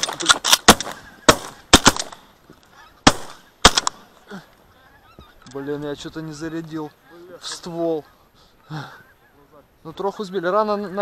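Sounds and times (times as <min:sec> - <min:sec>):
shotgun blasts: 0:00.0 - 0:02.2, 0:03.0 - 0:04.0
geese honking: 0:02.7 - 0:03.6, 0:04.7 - 0:11.0.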